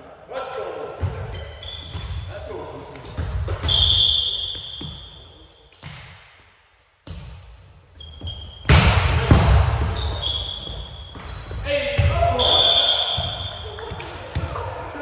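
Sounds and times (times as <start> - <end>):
sneakers squeaking on gym floor: 0.9 - 6.3, 7.0 - 15.0
referee's whistle: 3.6 - 5.0, 12.3 - 13.8
volleyball hits: 8.6 - 15.0.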